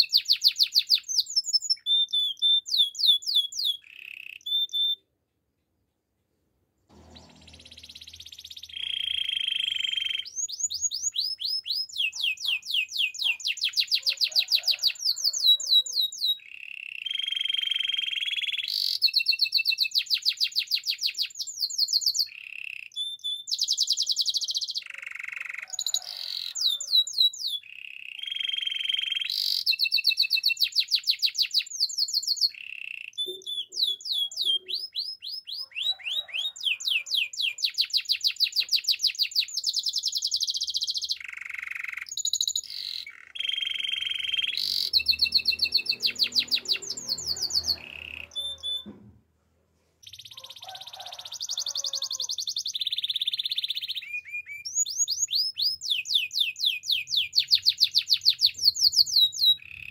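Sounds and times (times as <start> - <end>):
canary singing: 0.0 - 5.1, 6.9 - 49.0, 50.0 - 59.9.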